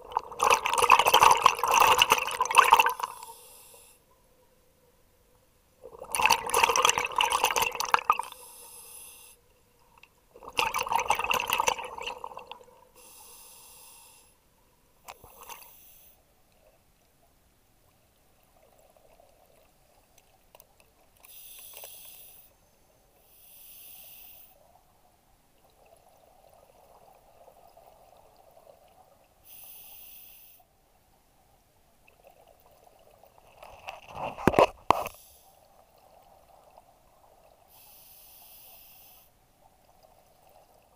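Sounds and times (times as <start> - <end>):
exhaust bubbles underwater: 0.0 - 3.2, 5.9 - 8.3, 10.4 - 12.7
hissing regulator inhalations: 13.0 - 14.4, 21.3 - 22.5.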